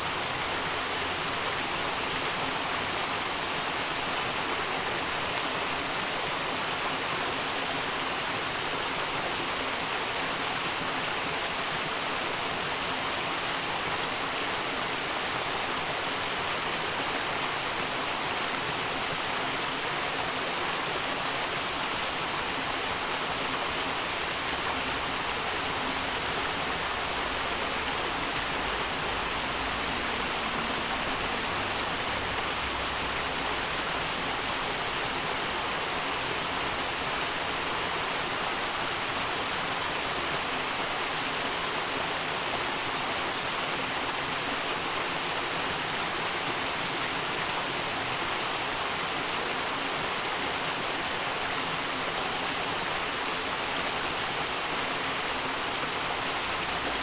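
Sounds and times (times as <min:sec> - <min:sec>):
mountain stream rushing: 0:00.0 - 0:57.0.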